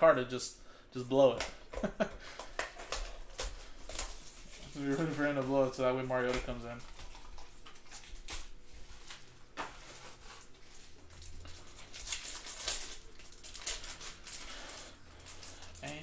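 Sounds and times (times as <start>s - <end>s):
wrappers rustling and crinkling: 2.7s - 16.0s.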